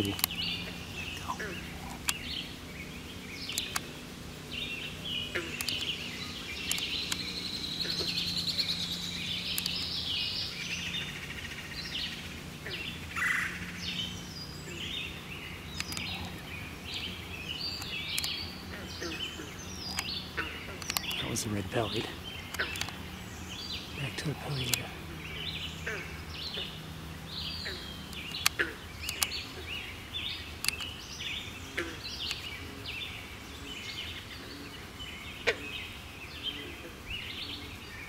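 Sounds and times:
sharp clicks: 0.0s - 0.4s, 3.4s - 3.9s, 5.5s - 6.0s, 6.6s - 7.4s, 9.5s - 9.9s, 15.7s - 16.2s, 17.8s - 18.4s, 19.9s - 20.1s, 20.8s - 23.0s, 24.1s - 24.9s, 28.1s - 29.4s, 30.6s - 30.9s
songbirds singing: 0.0s - 38.0s
steady low hum: 0.0s - 38.0s.

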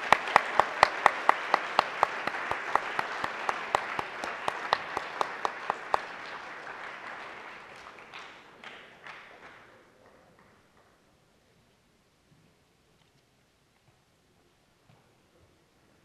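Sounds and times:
audience applauding: 0.0s - 10.6s
close sharp hand clapping: 0.0s - 10.9s.

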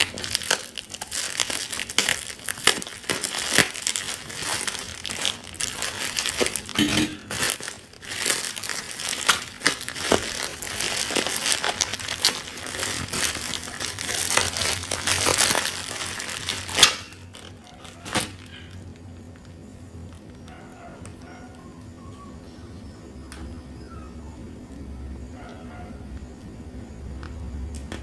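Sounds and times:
bubble wrap crinkling and crackling: 0.0s - 21.7s.

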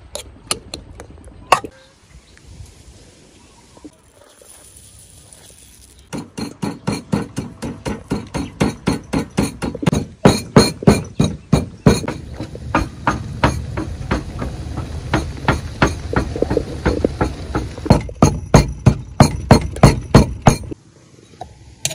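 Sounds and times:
pestle pounding in stone mortar: 6.1s - 20.8s
low rumble: 12.1s - 18.3s.

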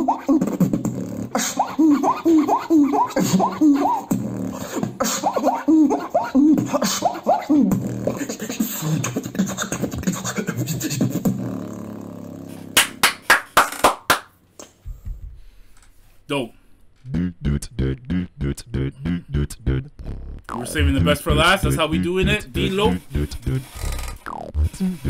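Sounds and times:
person beatboxing: 0.0s - 13.2s, 17.0s - 25.0s
hand claps: 12.8s - 14.8s.

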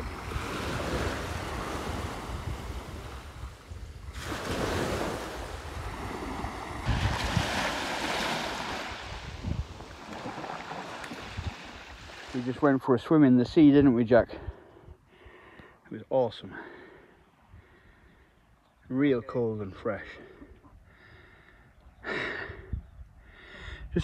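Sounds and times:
wind buffeting microphone: 0.0s - 12.5s, 22.5s - 24.0s
small waves washing on sand: 0.0s - 12.9s.

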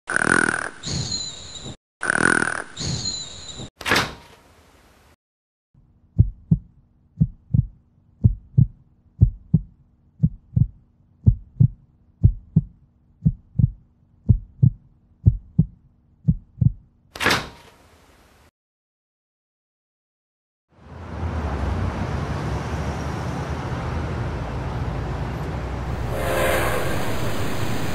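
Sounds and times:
heartbeat thumps: 6.2s - 16.9s
rush of noise: 25.8s - 27.9s.

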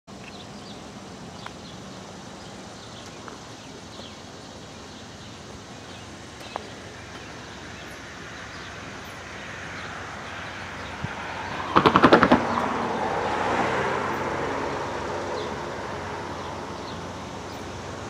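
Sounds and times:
outdoor hiss: 0.1s - 11.7s, 12.5s - 18.0s
sharp ticks: 11.7s - 12.7s.

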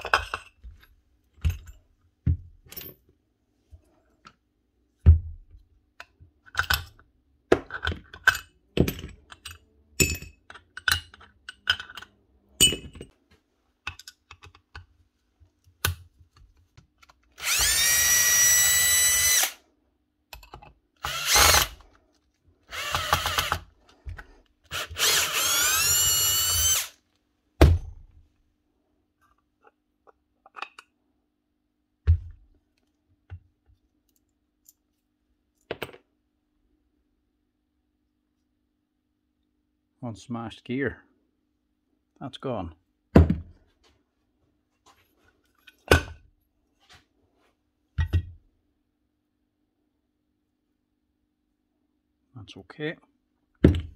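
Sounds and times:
metal parts clicking and knocking: 7.7s - 13.2s, 13.9s - 14.9s
cordless drill whining: 17.4s - 19.6s, 21.0s - 21.8s, 22.7s - 23.7s, 24.7s - 27.0s.

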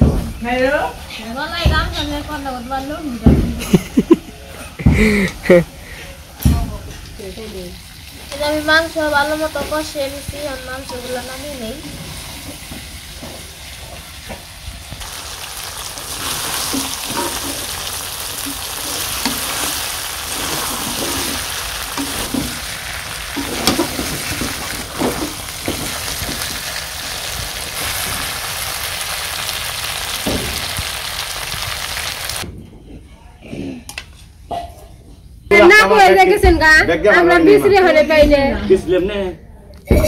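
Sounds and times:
food sizzling in hot oil: 6.2s - 32.4s
spatula scraping a pot: 19.1s - 22.6s.

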